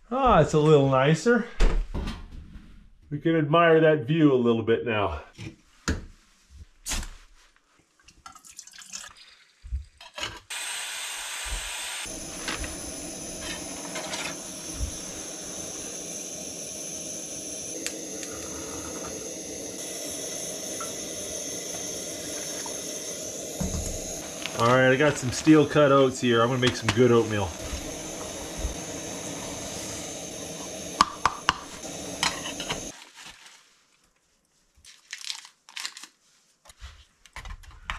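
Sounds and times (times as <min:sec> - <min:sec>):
camp stove burner hissing: 0:10.5 - 0:33.0.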